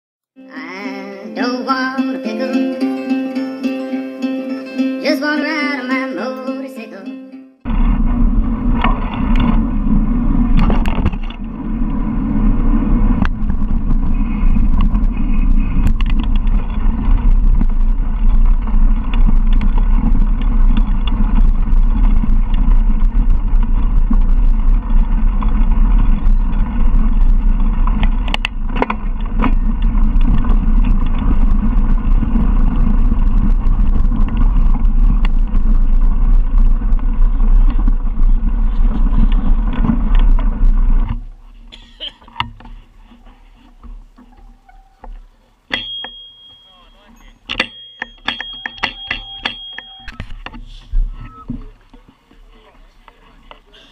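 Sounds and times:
wind on microphone: 7.6s - 45.2s
bike tyres on gravel: 7.6s - 53.9s
bike clicks and rattles: 7.7s - 53.9s.

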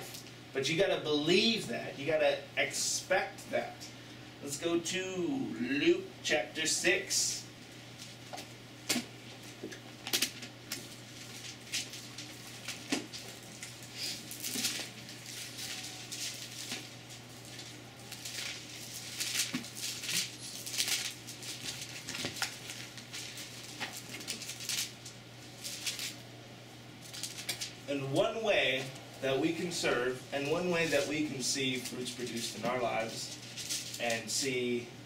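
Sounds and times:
pages being leafed through: 8.0s - 26.2s, 27.0s - 27.8s.

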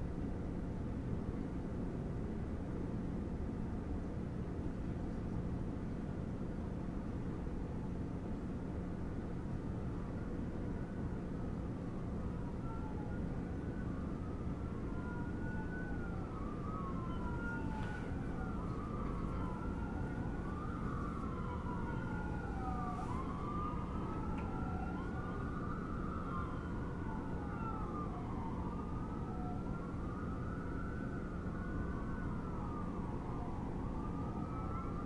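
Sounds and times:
low city rumble: 0.0s - 35.0s
emergency sirens wailing: 9.8s - 35.0s.

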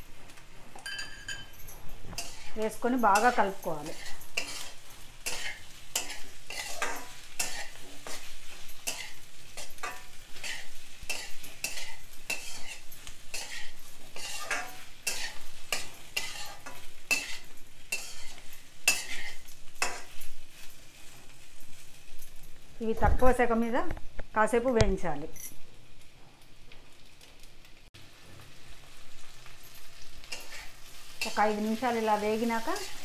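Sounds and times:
food sizzling in oil: 0.0s - 33.0s
metal spatula scraping iron pan: 2.1s - 20.8s, 30.3s - 33.0s.

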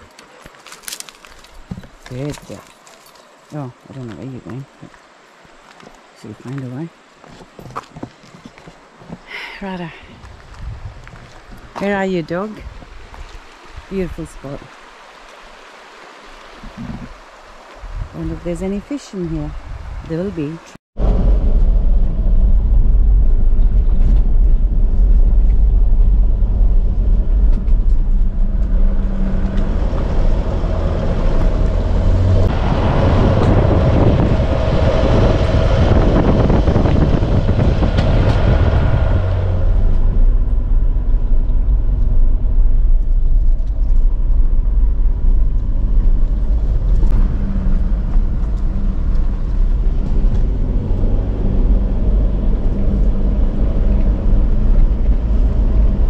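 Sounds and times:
tyre and road noise: 0.0s - 56.0s
low engine drone: 21.0s - 56.0s.

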